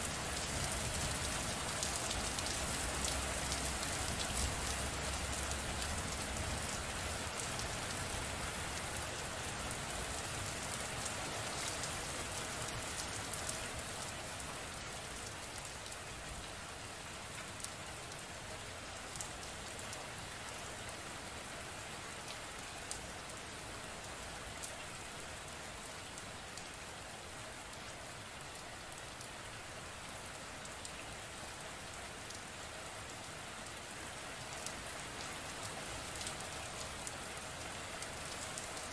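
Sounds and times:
raindrops ticking close by: 0.0 - 38.9
steady rain falling: 0.0 - 38.9.

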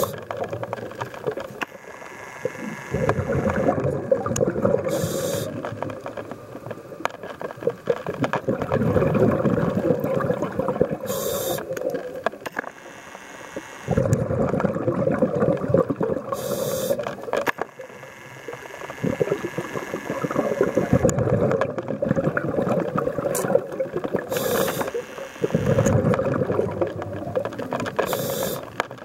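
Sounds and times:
exhaled air bubbles: 0.0 - 1.6, 2.4 - 12.4, 13.9 - 17.4, 18.7 - 29.0
regulator hissing inhalation: 4.8 - 5.6, 11.0 - 11.7, 16.3 - 17.0, 24.3 - 25.0, 28.0 - 28.7.

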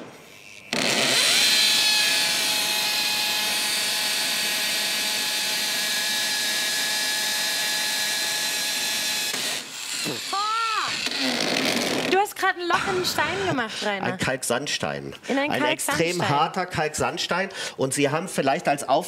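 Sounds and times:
hammer drill drilling into brick: 0.0 - 12.2.

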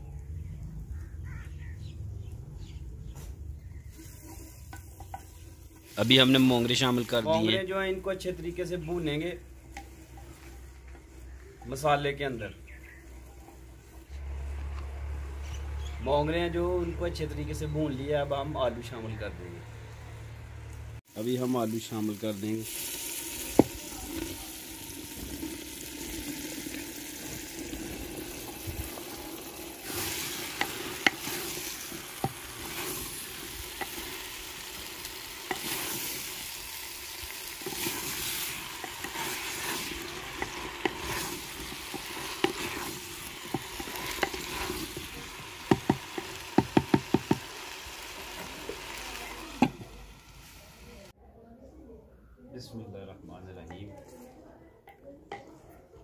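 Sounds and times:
wooden spoon scraping pot: 3.8 - 7.5, 29.8 - 34.3, 35.4 - 36.4, 37.5 - 47.4
food sizzling in a pot: 3.9 - 14.2, 21.1 - 51.2
spoon knocking on clay pot: 45.7 - 47.5.

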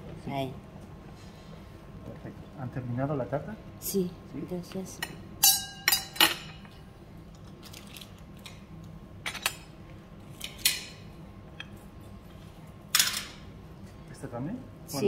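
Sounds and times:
china plates and cutlery clinking: 5.0 - 6.7.

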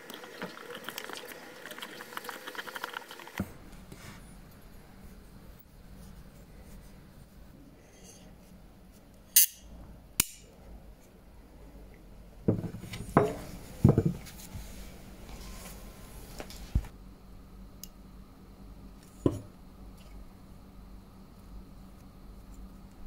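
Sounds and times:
tools clattering on wooden workbench: 12.5 - 14.2.

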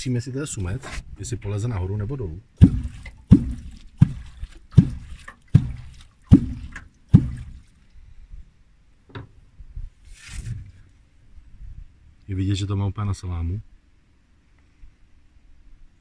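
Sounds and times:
water slapping and splashing: 2.6 - 8.0.

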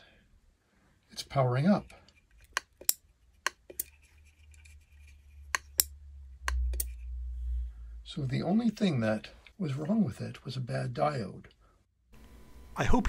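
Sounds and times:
low hum: 4.4 - 8.5, 12.2 - 13.0.

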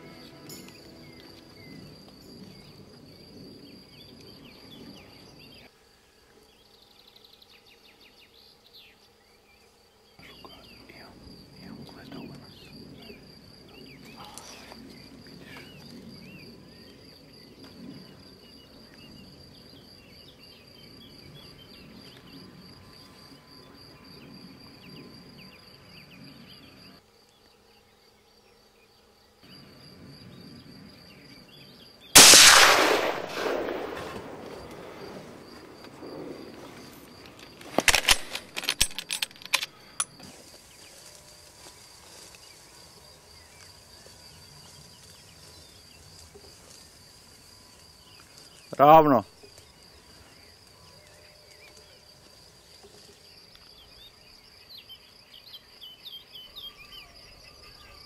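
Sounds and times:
insect trilling: 10.2 - 27.0
rifle shot echoing: 32.2 - 35.4
sharp clicks and knocks: 37.4 - 40.2.

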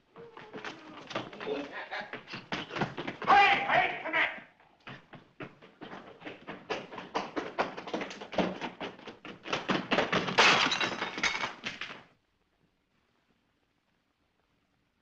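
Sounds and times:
rapid knocks and thuds: 2.1 - 3.7, 4.9 - 12.0.

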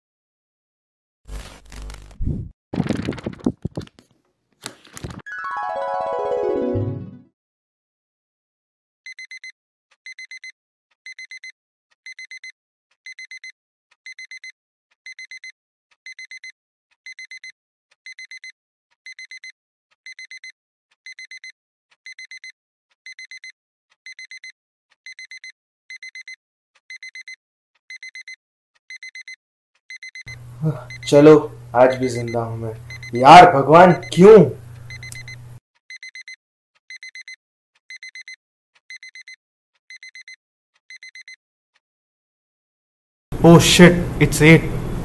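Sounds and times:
smartphone alarm beeping: 9.1 - 9.5, 10.1 - 10.5, 11.1 - 11.5, 12.1 - 12.5, 13.1 - 13.5, 14.1 - 14.5, 22.1 - 22.5, 23.1 - 23.5, 24.1 - 24.5, 25.1 - 26.3, 26.9 - 27.3, 27.9 - 28.3, 28.9 - 29.3, 29.9 - 35.4, 36.0 - 36.3, 36.9 - 37.3, 37.9 - 39.3, 39.9 - 40.3, 40.9 - 41.4.

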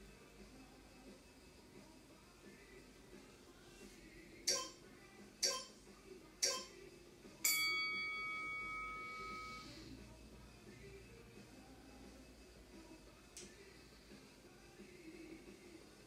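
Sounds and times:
short timer beeps: 4.5 - 4.8
longer ringing tone: 7.4 - 9.8.

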